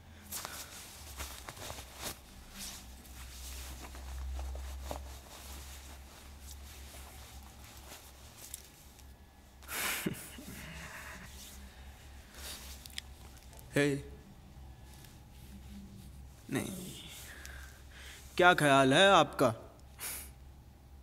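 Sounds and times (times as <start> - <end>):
steady low hum: 0.0 - 21.0
plastic bag rustling: 0.3 - 9.2.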